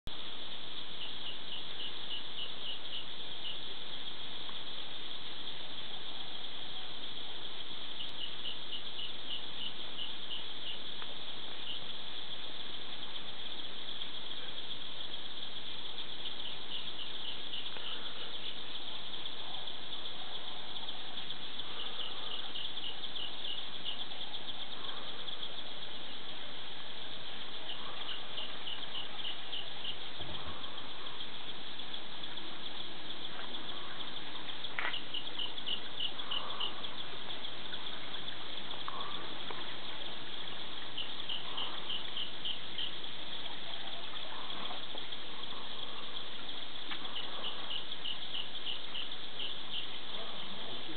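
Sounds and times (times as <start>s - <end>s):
insects trilling: 0.1s - 50.9s
rapid insect chirps: 0.1s - 50.9s.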